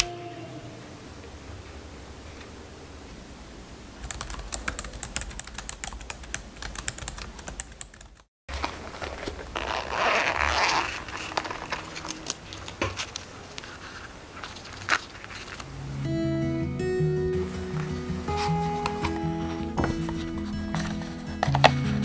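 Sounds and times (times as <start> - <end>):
laptop keyboard typing: 4.0 - 8.3.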